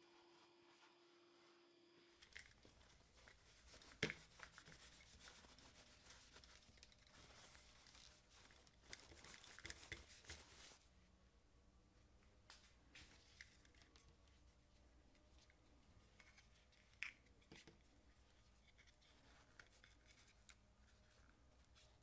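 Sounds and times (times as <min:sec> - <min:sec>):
tissue rubbing and crinkling: 0:02.3 - 0:10.9.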